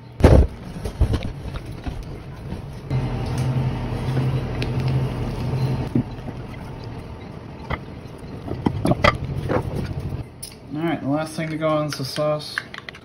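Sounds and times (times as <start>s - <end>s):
low motor hum: 1.0s - 10.2s.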